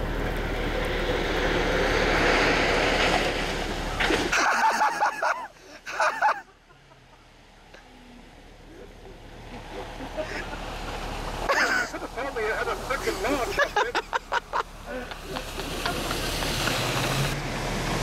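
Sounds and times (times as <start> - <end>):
water splashing: 0.0 - 5.3, 9.4 - 18.0
engine running: 0.0 - 18.0.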